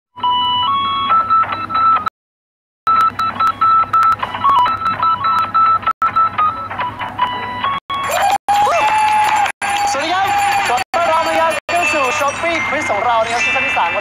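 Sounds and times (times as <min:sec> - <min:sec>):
electronic beeps melody: 0:00.2 - 0:02.1, 0:02.9 - 0:08.1, 0:10.6 - 0:14.0.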